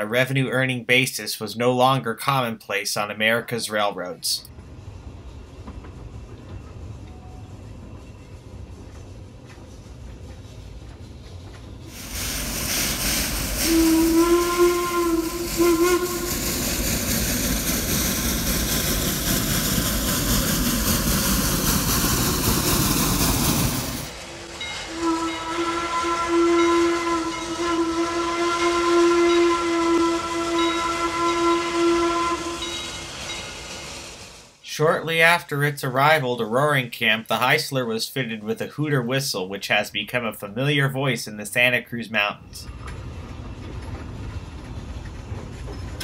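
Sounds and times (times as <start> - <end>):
steam hissing: 9.8 - 34.6
steam locomotive whistle: 12.0 - 16.9, 24.7 - 33.1.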